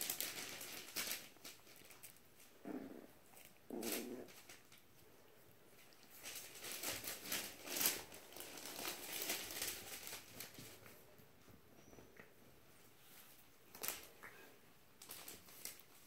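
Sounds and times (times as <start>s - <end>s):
paper crinkling and rustling: 0.0s - 2.5s, 3.4s - 5.0s, 5.8s - 11.1s, 13.2s - 14.2s, 15.0s - 16.0s.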